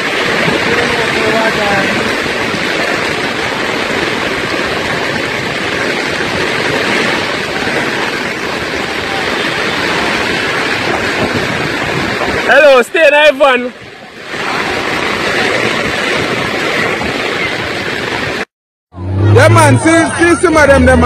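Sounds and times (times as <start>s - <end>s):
fast-flowing floodwater: 0.0s - 21.0s
heavy rain: 0.0s - 21.0s.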